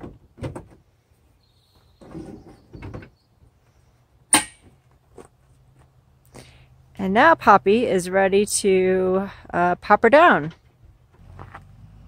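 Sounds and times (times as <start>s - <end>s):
sharp metallic clank: 4.3s - 4.7s.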